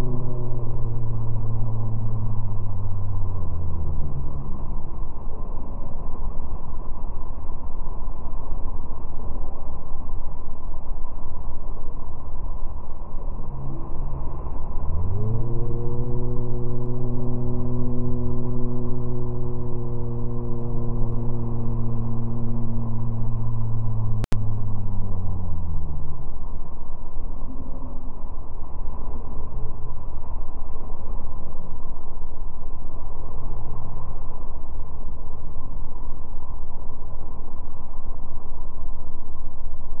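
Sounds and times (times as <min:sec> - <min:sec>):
motorboat running at speed: 0:00.0 - 0:08.2, 0:12.4 - 0:30.5
low droning hum: 0:00.0 - 0:40.0.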